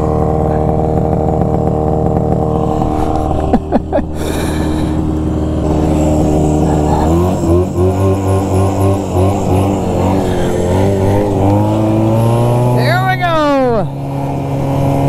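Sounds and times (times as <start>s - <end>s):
snowmobile engine idling and revving: 0.0s - 15.0s.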